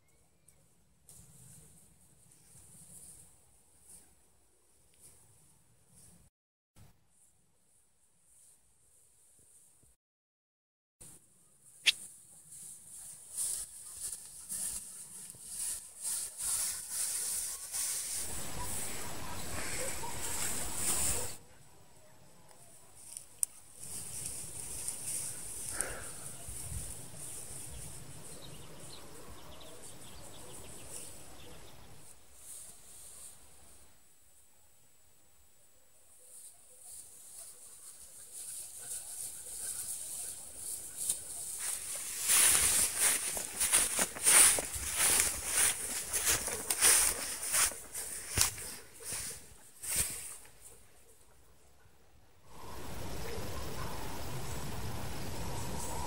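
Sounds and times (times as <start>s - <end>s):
tall grass swishing: 11.9s - 21.4s, 23.8s - 27.9s, 36.8s - 50.7s.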